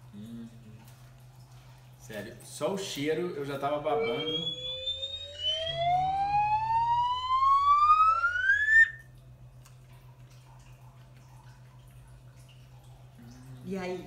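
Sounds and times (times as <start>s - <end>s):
faint low hum: 0.0s - 14.0s
rising whistle sound effect: 3.9s - 9.0s.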